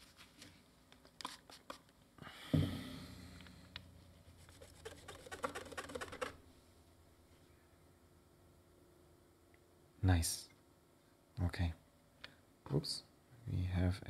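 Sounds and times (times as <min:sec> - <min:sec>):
tissue rubbing circuit board: 0:04.2 - 0:06.4.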